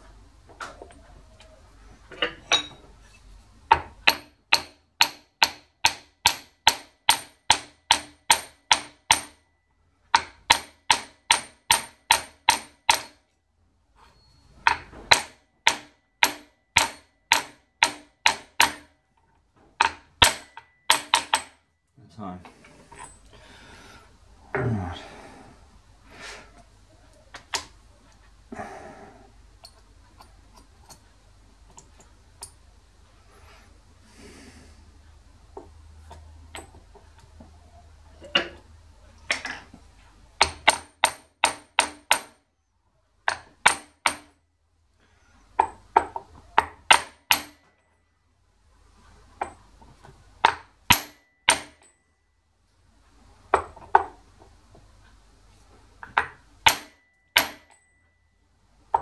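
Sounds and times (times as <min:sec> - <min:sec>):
quiet metal clinks: 0:02.1 - 0:03.3, 0:14.0 - 0:14.9, 0:20.4 - 0:23.4, 0:29.6 - 0:32.7, 0:50.9 - 0:52.4, 0:56.9 - 0:59.0
hammer striking steel: 0:04.0 - 0:09.4, 0:14.7 - 0:18.9, 0:19.8 - 0:21.6, 0:50.9 - 0:52.0, 0:56.6 - 0:58.0.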